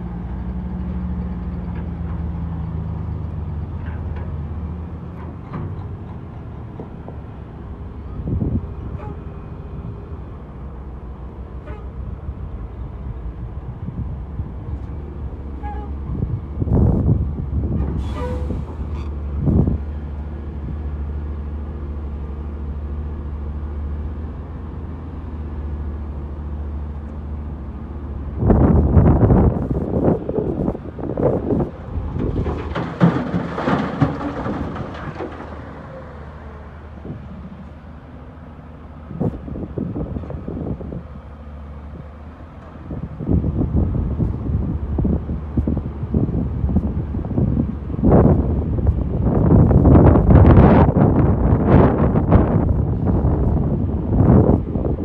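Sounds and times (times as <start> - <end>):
diesel engines rumbling: 0.0 - 55.0
rocks clattering into truck bed: 32.0 - 35.8.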